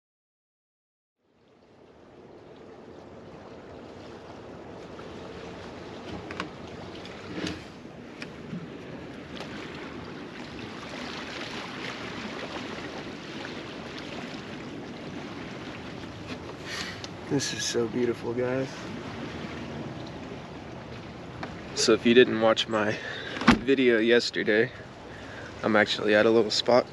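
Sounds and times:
waves lapping on rocky shore: 1.3s - 26.9s
camper door clicks and knocks: 23.4s - 23.7s.

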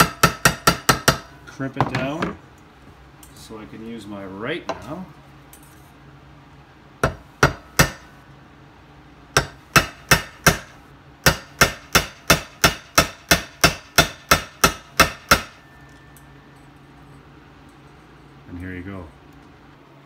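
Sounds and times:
hammer striking metal: 0.0s - 1.4s, 7.0s - 8.1s, 9.4s - 16.4s.

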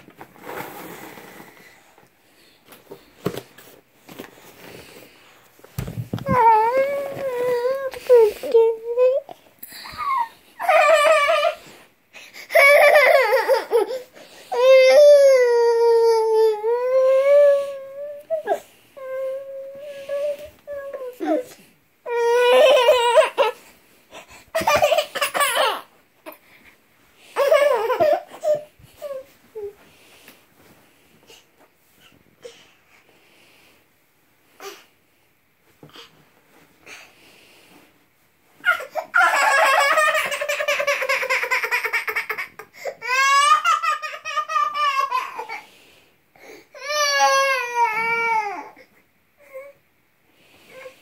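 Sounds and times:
toddler laughing and squealing: 38.6s - 45.6s.

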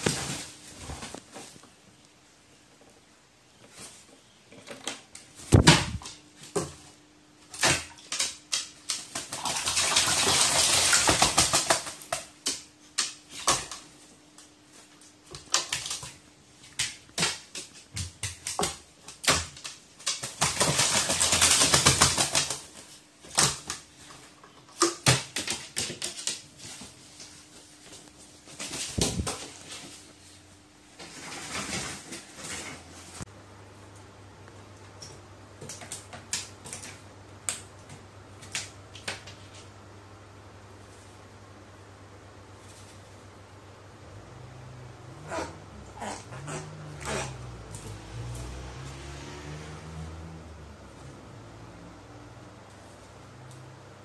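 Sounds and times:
bird splashing and wing-flapping: 7.5s - 13.9s, 15.3s - 23.9s.

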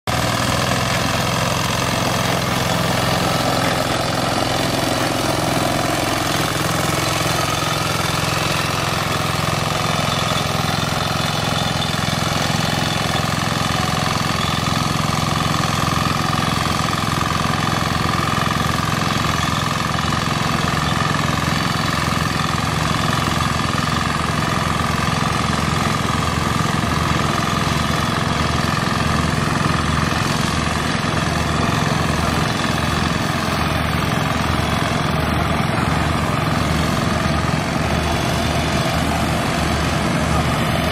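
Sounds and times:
reaper engine running: 0.0s - 40.9s.

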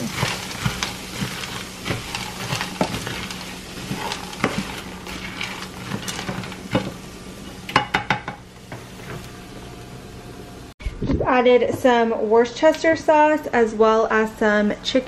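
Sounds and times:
plastic spatula scraping pan: 0.0s - 7.0s
vegetables sizzling in frying pan: 0.0s - 10.7s.

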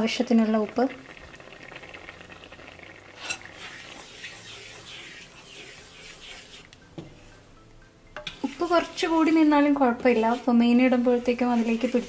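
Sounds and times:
spatula scraping in a pan: 3.2s - 7.4s, 8.3s - 12.0s.

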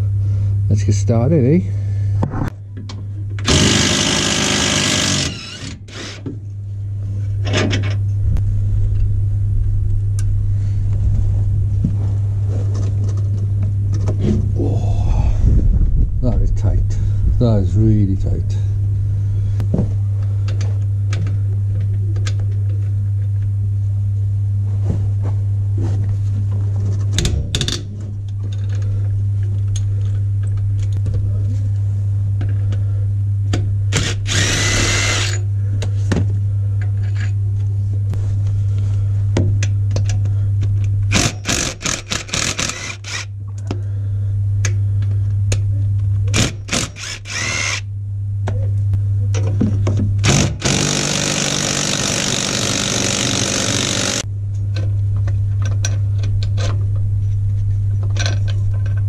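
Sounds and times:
low hum: 0.0s - 59.0s
cordless power tool bursts: 3.4s - 6.2s, 33.9s - 35.4s, 41.1s - 43.3s, 46.3s - 47.8s, 50.2s - 54.2s.

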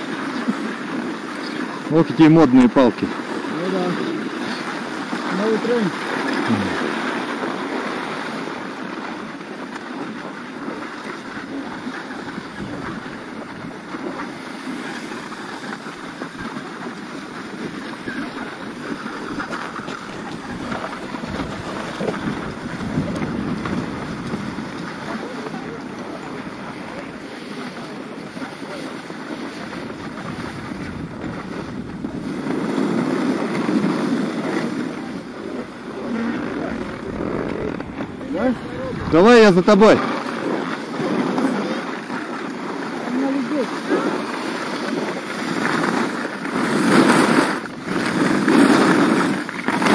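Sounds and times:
skis scraping over packed snow: 0.0s - 49.9s
wind buffeting microphone: 2.8s - 42.0s.

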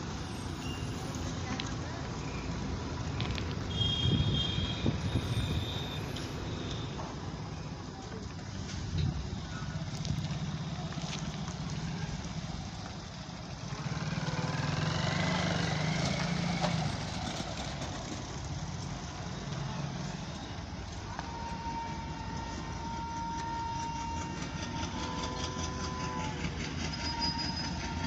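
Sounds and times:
road traffic noise: 0.0s - 28.0s
motorcycle engine passing: 13.5s - 18.4s.

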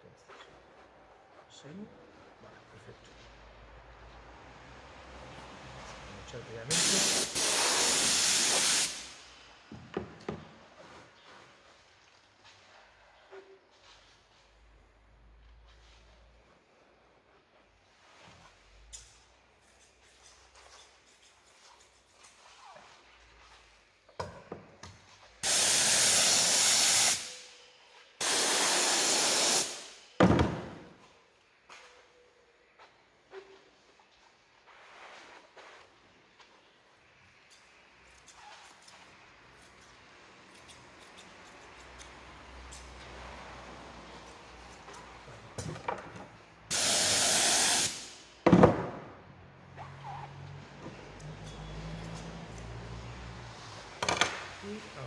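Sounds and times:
spray gun hissing: 6.7s - 9.3s, 25.4s - 27.5s, 28.2s - 30.0s, 46.7s - 48.2s
spray gun set down on table: 30.2s - 30.8s, 48.5s - 49.1s, 54.0s - 54.4s.

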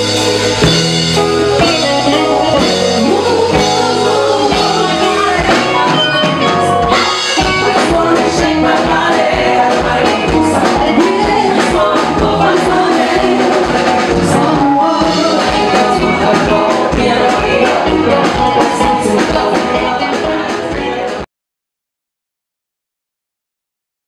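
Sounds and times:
electric guitars: 0.0s - 21.2s
drum kit beat: 0.0s - 21.3s
woman singing: 1.6s - 20.6s.

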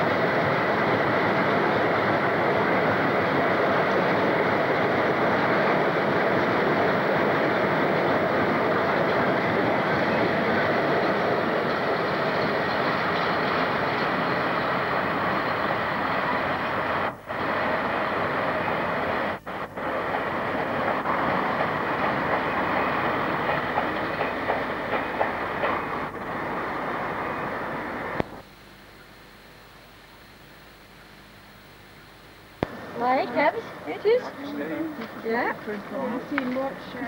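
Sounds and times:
freight train rumbling past: 0.0s - 28.4s, 32.6s - 37.0s
faint tape hiss: 0.0s - 37.0s
wheels clicking over rail joints: 19.6s - 28.4s, 35.0s - 37.0s.

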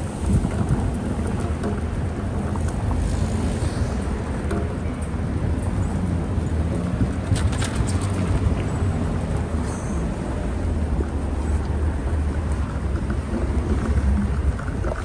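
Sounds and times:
low rumble of traffic: 0.0s - 15.0s
wind buffeting microphone: 0.0s - 15.0s.

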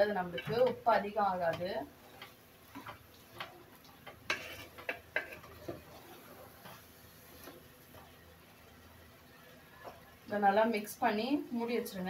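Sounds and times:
spatula scraping a metal pot: 4.3s - 7.6s.

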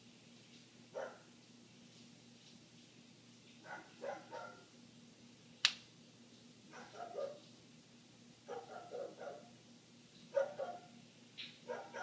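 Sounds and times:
dog barking: 1.0s - 1.3s, 3.6s - 4.7s, 6.7s - 7.4s, 8.5s - 9.6s, 10.3s - 11.0s, 11.6s - 12.0s.

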